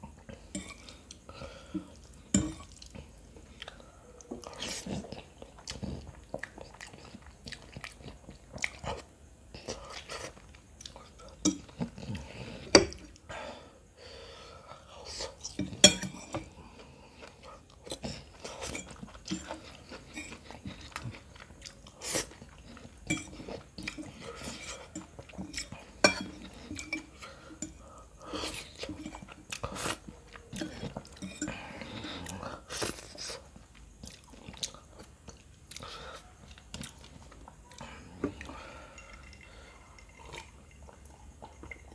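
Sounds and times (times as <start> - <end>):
chewing and slurping noodles: 1.9 - 13.2, 16.3 - 41.9.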